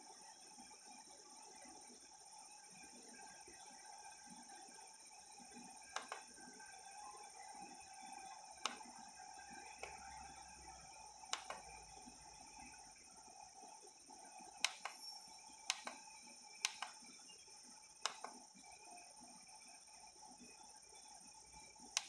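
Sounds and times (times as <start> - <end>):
faint steady hiss: 0.0 - 22.0
keypad buttons clicking: 6.0 - 6.2.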